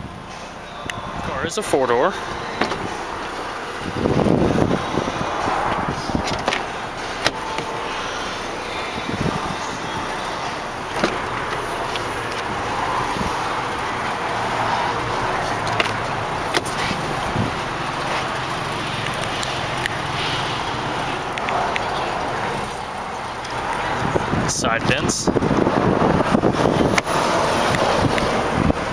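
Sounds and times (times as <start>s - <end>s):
outdoor background noise: 0.0s - 28.9s
car door clicks and knocks: 2.5s - 3.3s, 5.7s - 7.7s, 10.8s - 12.6s, 15.6s - 17.4s, 26.8s - 27.1s.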